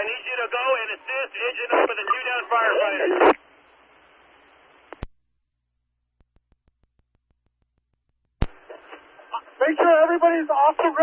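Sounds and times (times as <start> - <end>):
radio static hiss: 0.0 - 5.1, 8.4 - 11.0
radio squelch click: 3.1 - 3.4, 4.1 - 5.2, 8.4 - 9.4.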